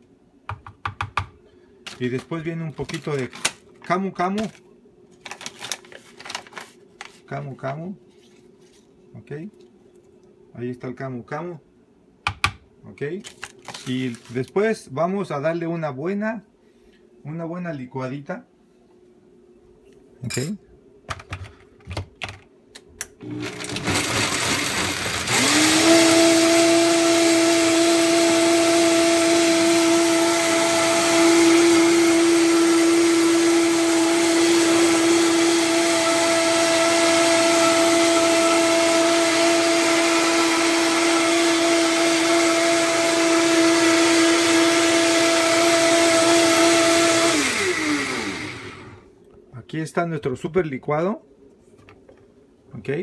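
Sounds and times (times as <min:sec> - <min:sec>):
blender whining: 0:23.2 - 0:49.1.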